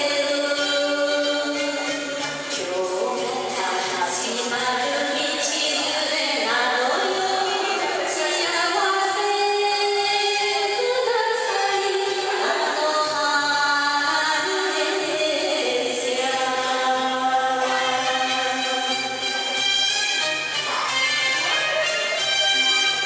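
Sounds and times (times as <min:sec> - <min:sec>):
instrumental backing track: 0:00.0 - 0:09.1, 0:16.0 - 0:23.0.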